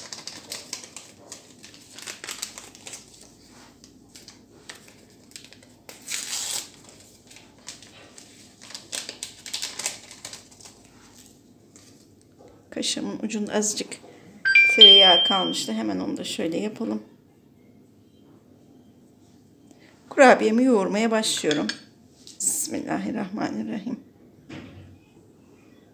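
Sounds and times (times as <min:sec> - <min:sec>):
paper packets crinkling and tearing: 0:00.0 - 0:12.1.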